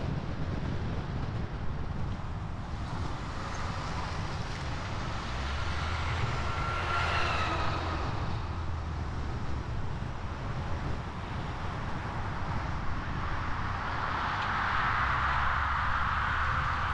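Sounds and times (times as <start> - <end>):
car road and tyre noise: 0.0 - 16.9
truck passing with rumble and whine: 0.0 - 16.9.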